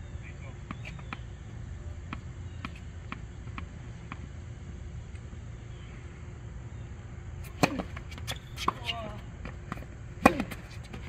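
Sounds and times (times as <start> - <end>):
low outdoor rumble: 0.0 - 11.0
tennis ball bouncing on court: 2.0 - 4.3, 7.4 - 11.0.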